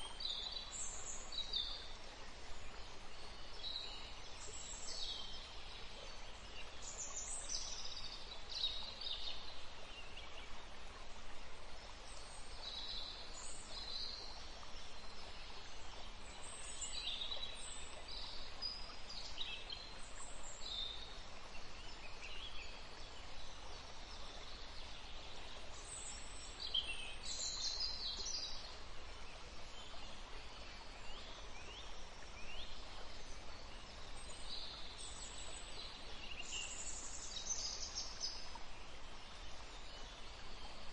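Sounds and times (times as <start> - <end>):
songbirds chirping: 0.0 - 40.9
steady background hiss: 0.0 - 40.9.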